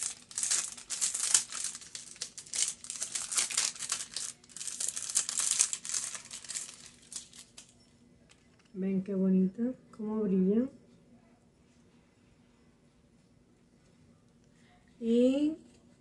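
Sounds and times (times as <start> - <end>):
small bag crinkling and rustling: 0.0 - 7.8.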